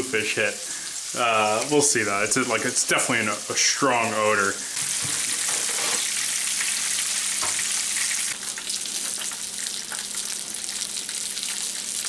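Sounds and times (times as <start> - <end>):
fish sizzling in hot oil: 0.0 - 3.7, 4.6 - 12.0.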